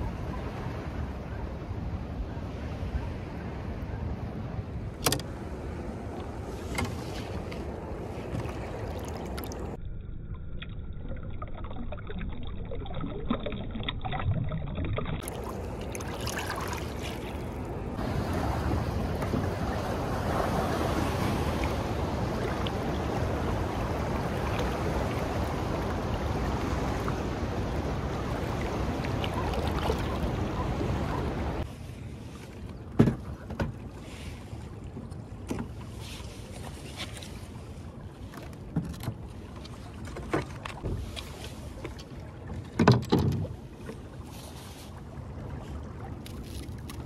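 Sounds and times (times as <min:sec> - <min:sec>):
fast river water rushing: 0:15.2 - 0:31.6
wind on microphone: 0:16.6 - 0:32.1.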